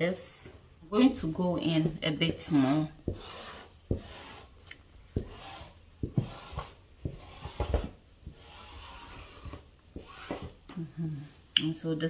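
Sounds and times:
hands rubbing fabric: 1.7 - 10.6.

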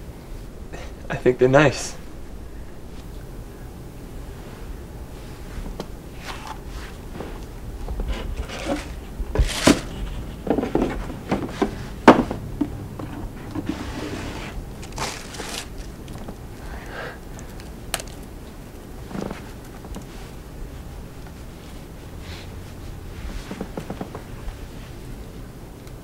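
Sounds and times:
cardboard box rustling: 5.7 - 16.4.

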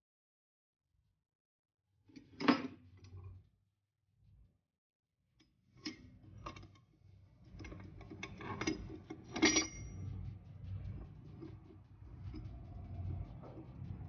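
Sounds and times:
steel parts clicking and clinking: 7.5 - 10.4
ringing metal clink: 7.6 - 10.1.

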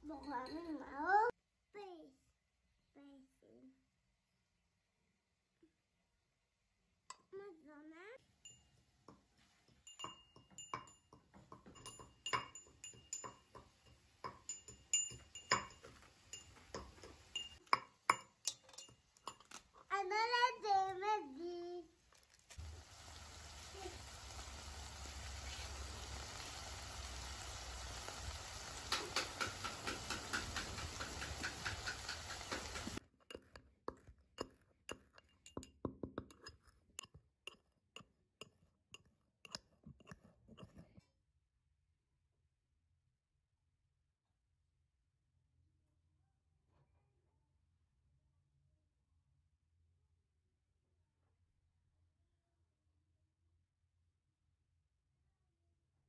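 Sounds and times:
pestle clinking in brass mortar: 8.5 - 19.6, 28.8 - 40.8.

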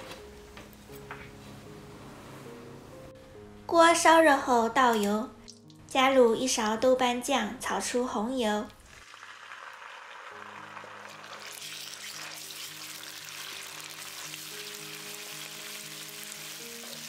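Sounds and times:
soft background music: 0.0 - 17.0
paste sizzling in hot oil: 8.8 - 17.0.

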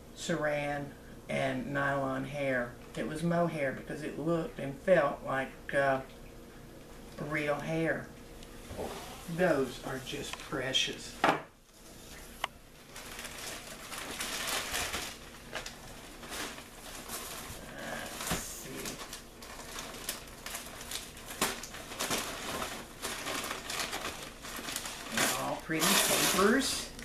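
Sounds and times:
paper and plastic rustling: 8.7 - 11.1, 11.7 - 27.0.

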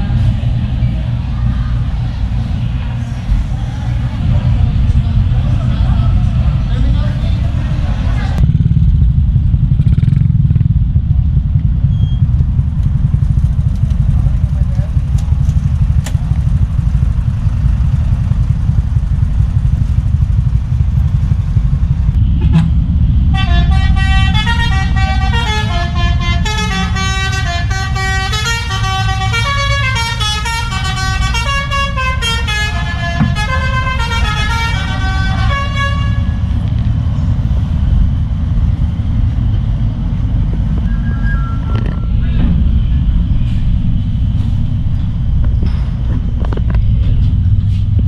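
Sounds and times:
low engine rumble: 0.0 - 48.0
truck horn playing a tune: 23.3 - 36.6.

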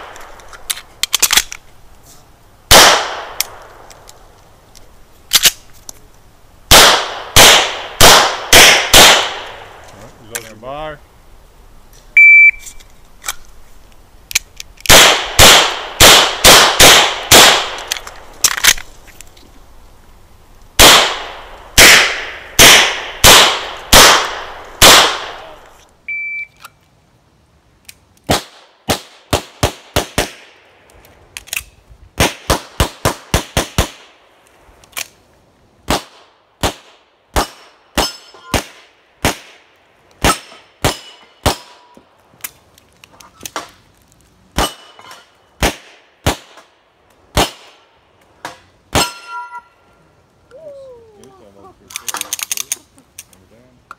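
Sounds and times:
pistol shots with echo: 2.7 - 3.4, 6.7 - 9.6, 14.9 - 17.8, 20.8 - 25.6
shot timer beep: 12.2 - 12.6, 26.1 - 26.6.

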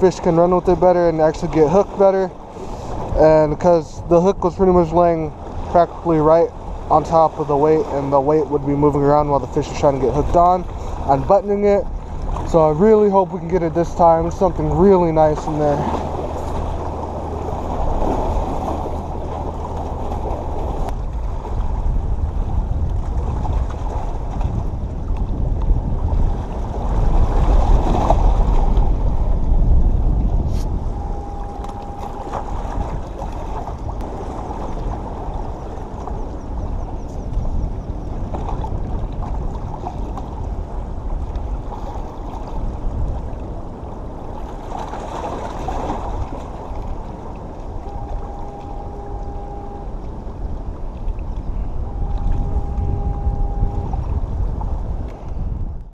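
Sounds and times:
waves washing against rocks: 0.0 - 36.2, 38.2 - 55.0
low rumble: 13.7 - 39.6, 46.8 - 55.9.

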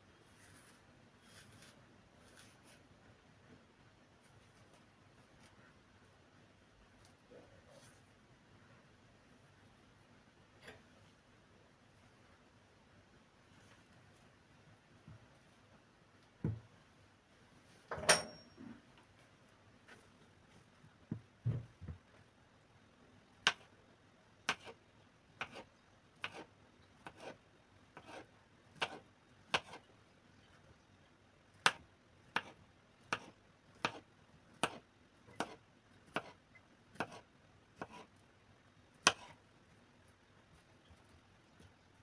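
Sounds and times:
soft thumps: 16.4 - 16.7, 21.1 - 22.0
knife cutting on plastic board: 24.5 - 24.8, 25.4 - 27.4, 28.0 - 29.8, 31.6 - 34.0, 34.6 - 36.4, 37.0 - 37.2, 37.8 - 38.1, 39.0 - 39.4.

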